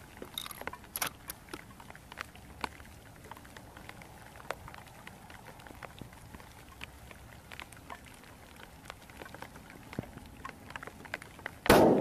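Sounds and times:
pouring rain hiss: 0.0 - 12.0
raindrops ticking on surfaces: 0.0 - 12.0.

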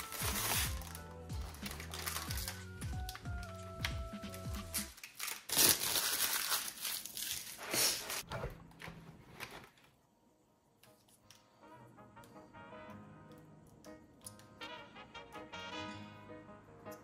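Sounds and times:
background music: 0.0 - 5.0, 10.3 - 17.0
plastic film crinkling and tearing: 0.0 - 8.3.

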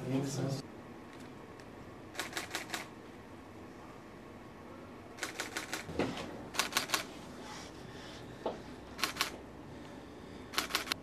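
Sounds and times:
camera shutters clicking: 2.2 - 2.9, 5.2 - 5.9, 6.6 - 7.1, 9.0 - 9.4, 10.6 - 11.0.

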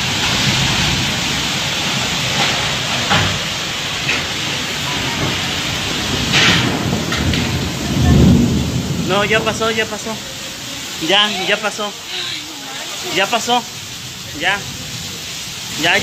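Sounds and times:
storm wind and driving rain: 0.0 - 16.0.

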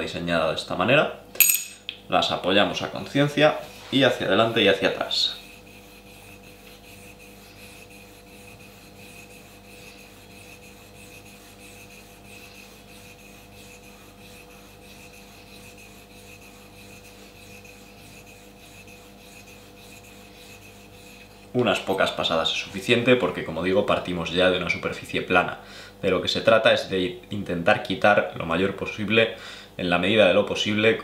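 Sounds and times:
metal blade scraping on whetstone: 6.0 - 22.4.

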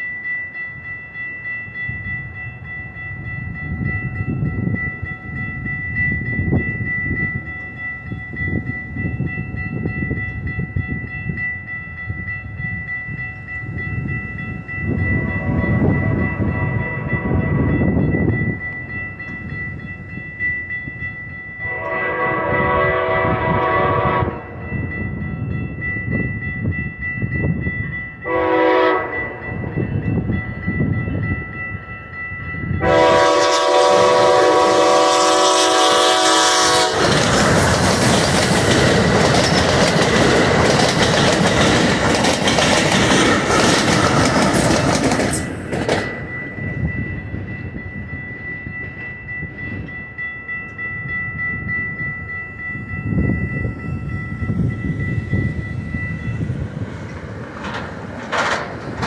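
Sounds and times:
crossing warning bell ringing: 0.0 - 59.0
passenger train passing: 0.0 - 59.0
train horn blasts: 15.1 - 18.0, 21.6 - 24.7, 28.2 - 29.9, 32.8 - 37.2.

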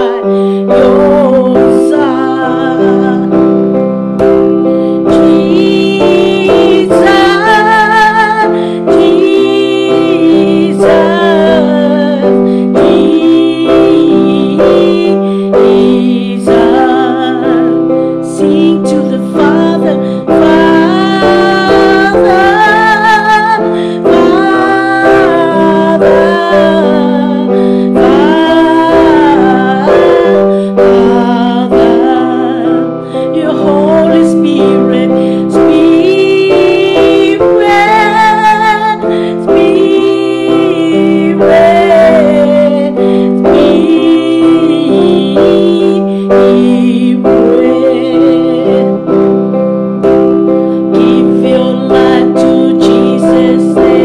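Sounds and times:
electronic keyboard chords: 0.0 - 54.0
woman singing: 0.0 - 54.0.

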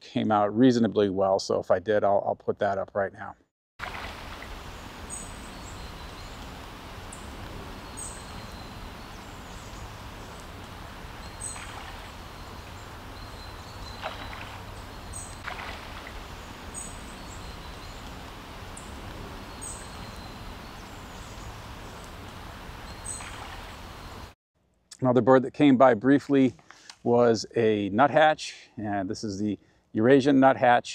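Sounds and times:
low rumble and hiss: 4.1 - 24.3
high-pitched bird calls: 11.2 - 18.0.

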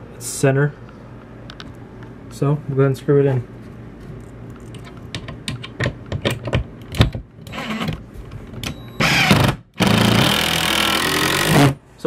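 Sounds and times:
knocks and clicks: 4.7 - 7.3
cordless drill driving screw: 9.0 - 11.7.

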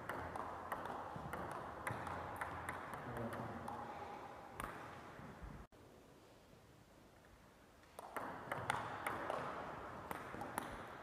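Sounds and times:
ping pong ball clicking off paddles: 0.0 - 4.0, 8.0 - 11.0.

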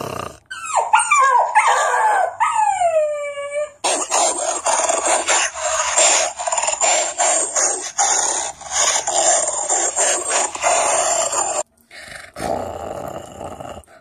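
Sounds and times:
person snarling and growling: 0.0 - 0.4, 3.8 - 14.0.

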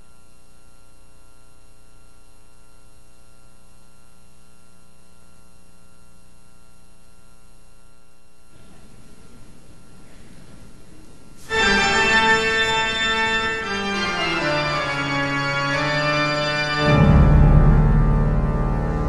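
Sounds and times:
faint fluttering background noise: 0.0 - 14.1
electrical mains hum: 0.0 - 19.0.

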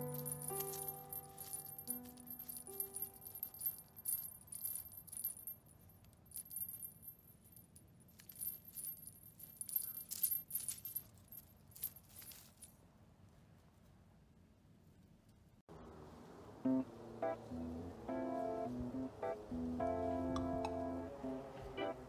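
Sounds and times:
faint background music: 0.0 - 4.7
small bell jingling: 0.0 - 12.7.

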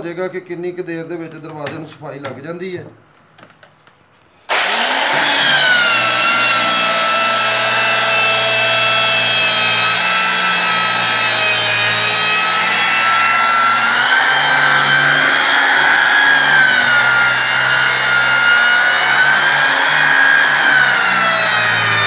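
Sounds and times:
angle grinder sanding wood: 4.5 - 22.0.

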